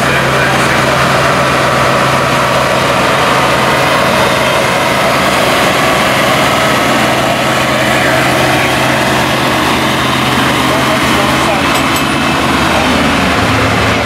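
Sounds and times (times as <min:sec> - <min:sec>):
tractor diesel engine under load: 0:00.0 - 0:14.0.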